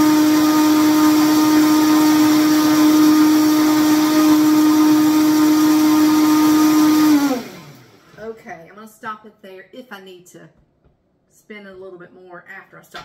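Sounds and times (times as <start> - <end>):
blender motor winding down: 0.0 - 8.3
blender running: 0.0 - 8.4.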